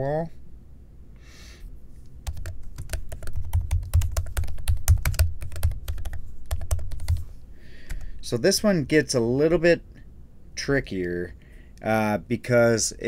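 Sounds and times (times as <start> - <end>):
keyboard typing clicks: 2.3 - 7.2.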